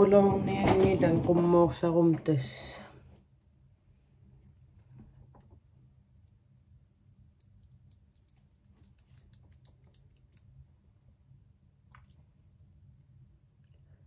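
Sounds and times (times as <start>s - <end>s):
low room hum: 0.0s - 14.0s
eyelash curler clicking: 7.4s - 10.5s.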